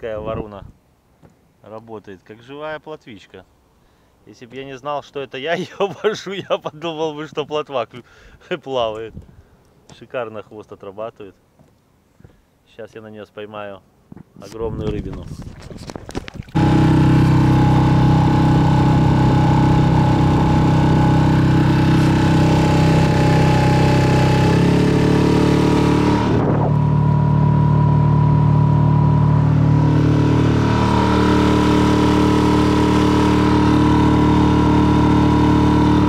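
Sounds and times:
outboard motor running: 15.8 - 36.0.

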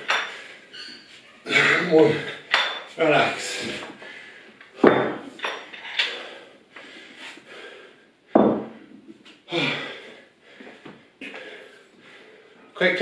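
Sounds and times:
dumbbells knocking on tiled floor: 4.8 - 5.3, 8.3 - 8.8
person breathing hard: 6.0 - 12.7.

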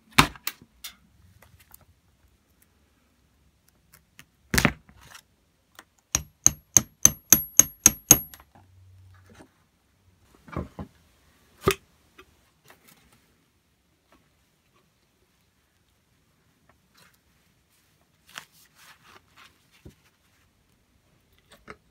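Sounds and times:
hammer tapping metal punch: 6.2 - 8.4.

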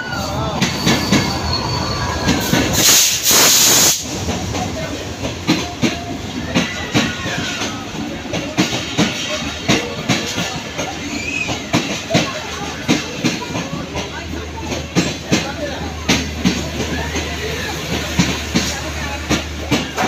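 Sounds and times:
train wheels clickety-clack: 0.1 - 20.0
loud hiss burst: 2.4 - 4.5.

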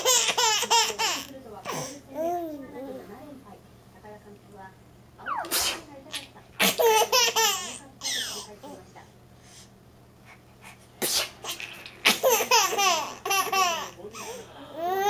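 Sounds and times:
baby laughing: 0.0 - 1.3, 5.2 - 8.4, 11.4 - 14.0
person sneezing: 5.3 - 5.9, 11.0 - 11.4.

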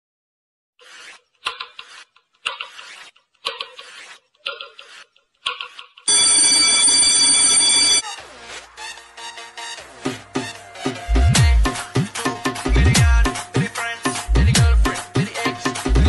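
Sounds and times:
clock ticking: 3.4 - 6.3
alarm clock ringing: 6.1 - 8.0.

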